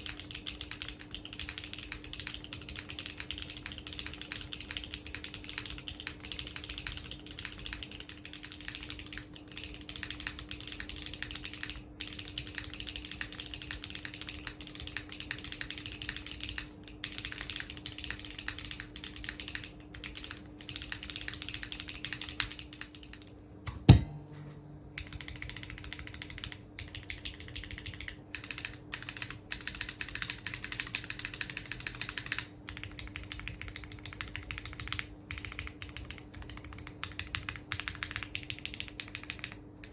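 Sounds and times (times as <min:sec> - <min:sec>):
fast typing on mechanical keyboard: 0:00.0 - 0:23.4, 0:25.0 - 0:39.9
faint steady hum: 0:00.0 - 0:39.9
loud sharp knock: 0:23.7 - 0:24.2.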